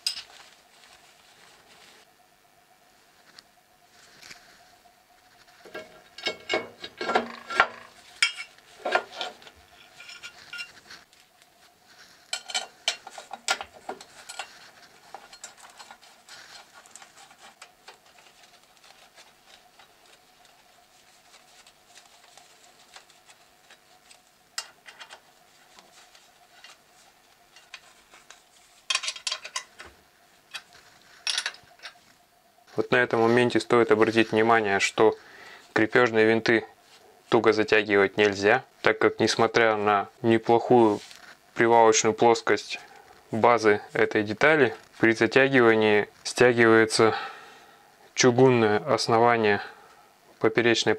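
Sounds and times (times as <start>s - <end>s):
steel parts clinking and scraping: 0.0s - 0.4s, 5.6s - 11.1s, 12.2s - 18.4s, 27.5s - 29.9s, 30.5s - 32.0s
faint steady hum: 0.0s - 50.9s.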